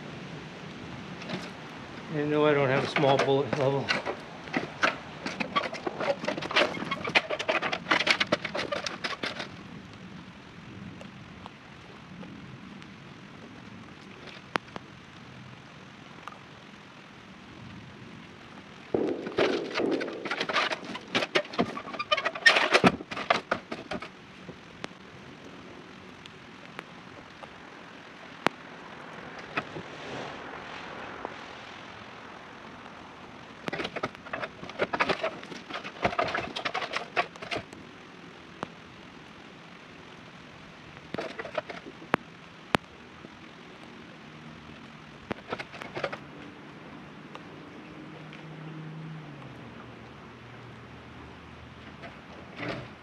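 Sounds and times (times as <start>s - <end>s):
stepladder clattering and scraping: 2.7s - 9.5s, 19.2s - 24.1s, 33.7s - 37.7s, 41.2s - 41.9s, 45.4s - 46.2s.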